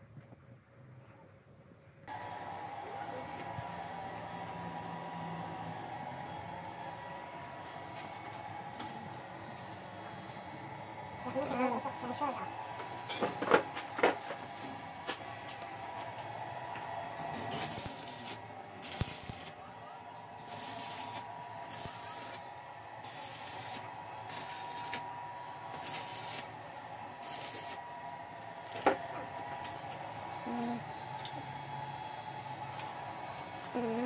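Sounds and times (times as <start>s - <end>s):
arc welding crackling hiss: 17.5s - 19.6s, 20.5s - 22.4s, 23.0s - 25.1s, 25.7s - 26.5s, 27.2s - 27.9s.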